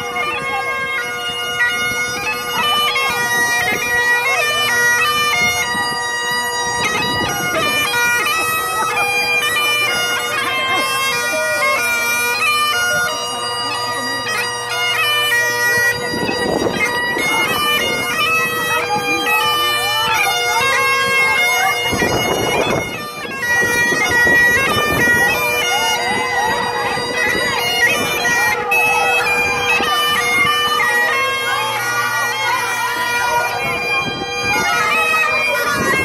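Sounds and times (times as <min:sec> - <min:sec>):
bagpipe playing a march: 0:00.0 - 0:36.0.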